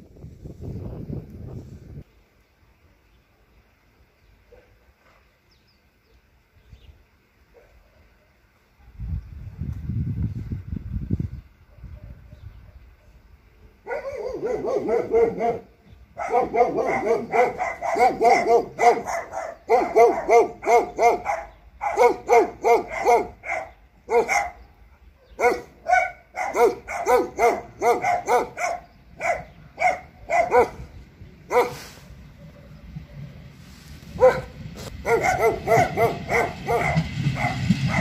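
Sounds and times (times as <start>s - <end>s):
dog barking rapidly: 13.8s - 33.3s, 34.2s - 38.0s.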